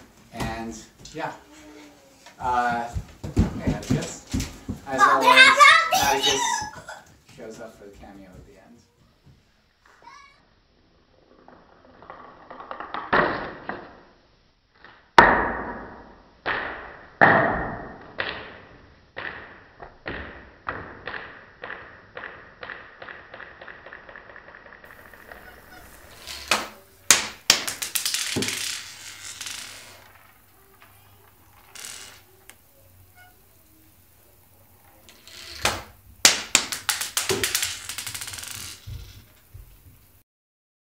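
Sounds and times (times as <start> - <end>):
marble bouncing on a table: 12.0 - 14.0, 15.2 - 32.6, 35.1 - 39.7.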